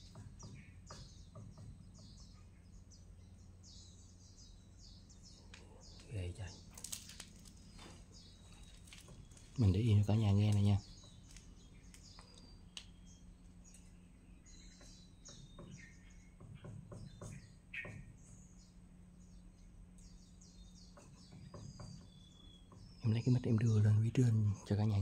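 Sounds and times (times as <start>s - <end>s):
steady low hum: 0.0s - 25.0s
faint bird chirps: 7.6s - 25.0s.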